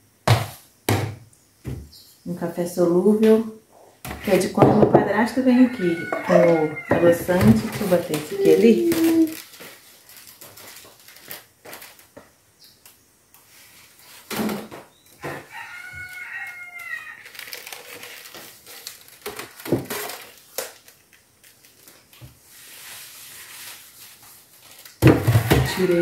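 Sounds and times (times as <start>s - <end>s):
rooster crowing: 5.3s - 7.5s, 15.2s - 17.4s, 25.6s - 26.0s.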